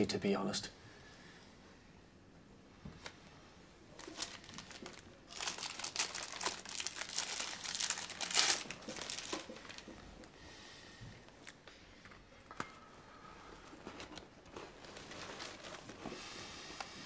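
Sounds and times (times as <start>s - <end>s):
newspaper pages rustling: 4.0s - 10.0s, 14.0s - 16.4s.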